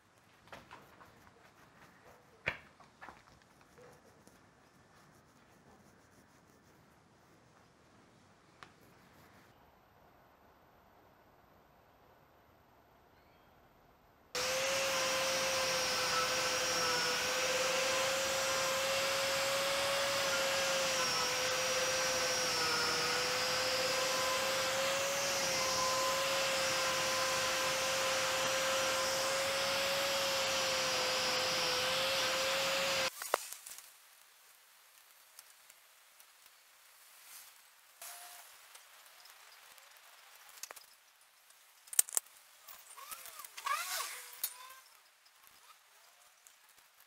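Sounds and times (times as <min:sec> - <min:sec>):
angle grinder whining on steel: 0:14.4 - 0:33.1.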